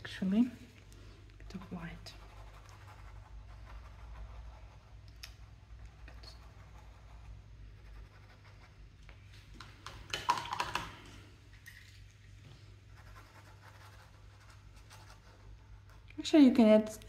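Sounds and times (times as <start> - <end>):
brush rattling in water cup: 9.8 - 12.1.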